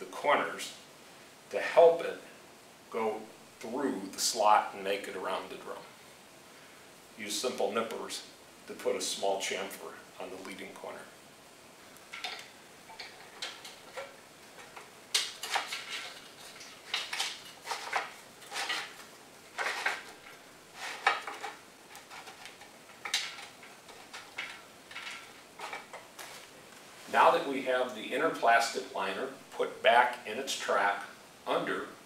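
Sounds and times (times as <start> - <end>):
plastic scraping against metal: 13.0 - 26.5.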